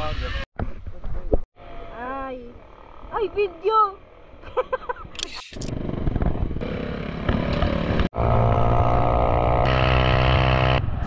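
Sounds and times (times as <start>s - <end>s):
small motorcycle engine running: 1.6s - 4.7s, 5.7s - 11.0s.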